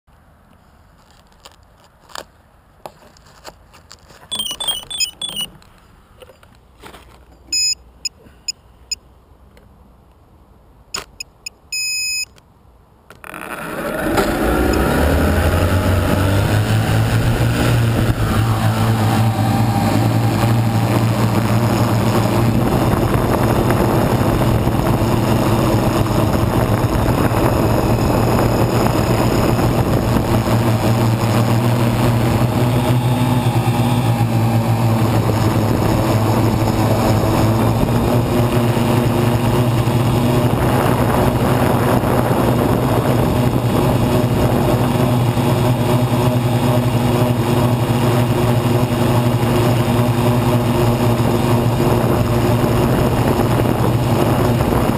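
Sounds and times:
drone motors buzzing: 4.3 - 5.5, 13.2 - 40.3.

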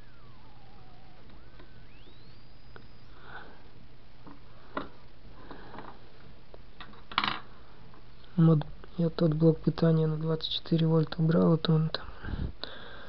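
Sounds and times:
electronic whine changing pitch: 0.0 - 4.1
low hum: 0.0 - 6.8.

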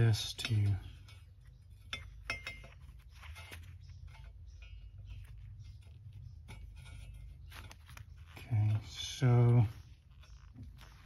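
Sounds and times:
low steady hum: 0.0 - 11.0
gloved hands rubbing: 2.8 - 11.0.

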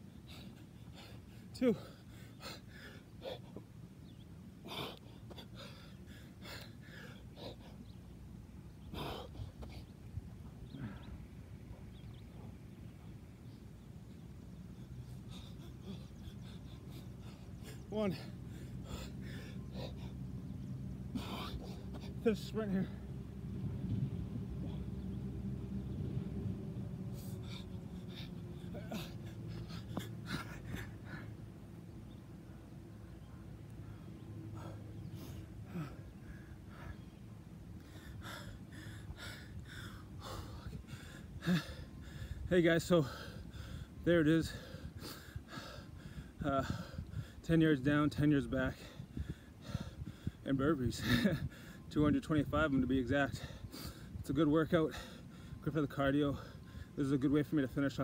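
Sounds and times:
man breathing hard and gasping: 0.2 - 3.8, 4.6 - 8.0, 8.8 - 11.4, 14.8 - 23.1, 27.1 - 31.8, 33.9 - 47.5, 48.7 - 50.4, 54.9 - 55.6.

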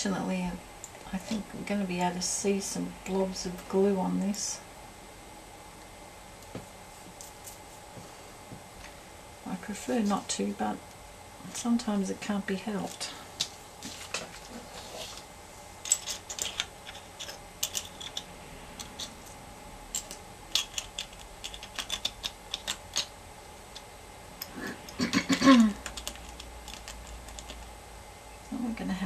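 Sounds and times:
seashells clicking and clinking: 15.8 - 19.1, 19.9 - 23.1, 25.8 - 27.7.

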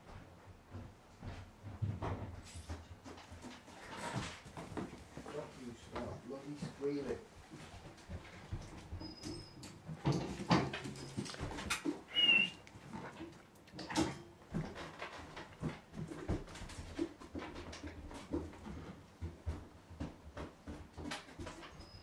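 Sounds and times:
puppy whining: 11.1 - 12.8.

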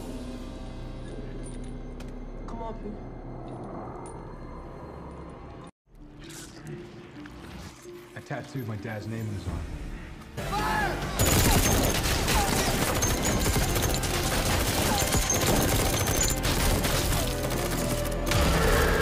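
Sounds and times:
rapid gunfire: 11.2 - 18.8.

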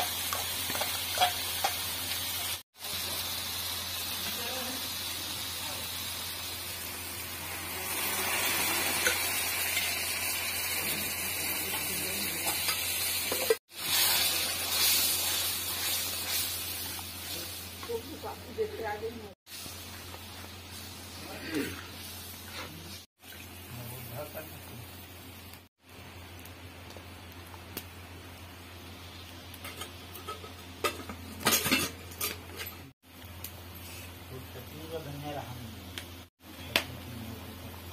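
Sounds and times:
metal utensils clattering on pan: 0.0 - 1.8, 29.6 - 32.9
sizzling and hissing in pan: 0.0 - 37.9.

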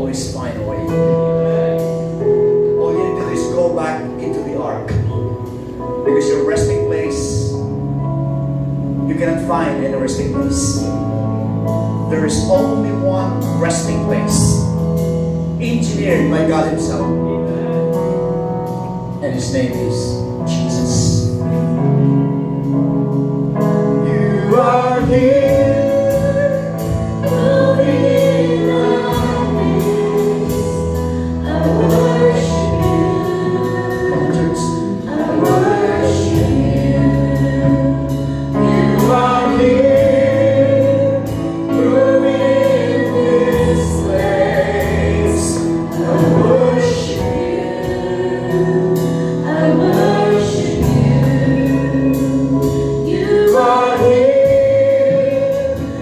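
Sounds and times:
instrumental accompaniment: 0.0 - 56.0
group singing gospel song: 23.9 - 56.0.

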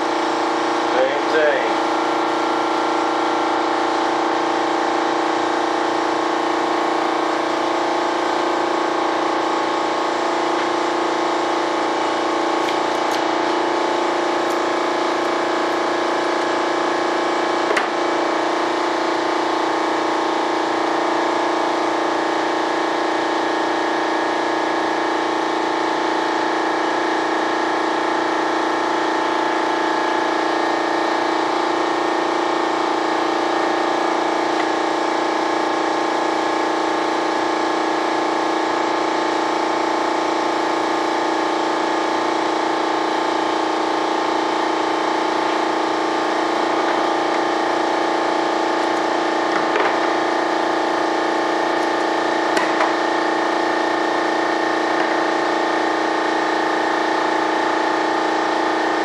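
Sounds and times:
steady machine hum: 0.0 - 59.0.

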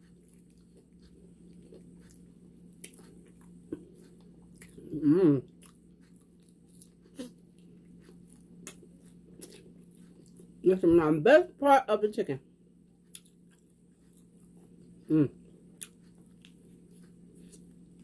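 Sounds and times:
chewing crispy fried chicken: 0.0 - 10.6, 13.0 - 18.0
person humming mm: 4.9 - 5.5, 15.1 - 15.4.

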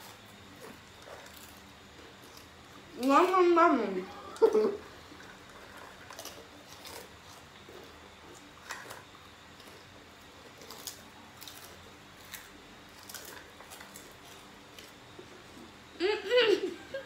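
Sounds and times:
people chewing crisp food: 0.0 - 16.0.

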